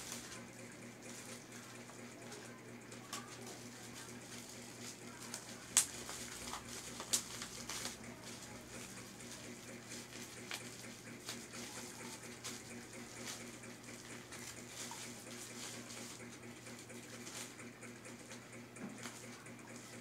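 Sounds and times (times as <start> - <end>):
plastic packaging crinkling: 3.1 - 16.4.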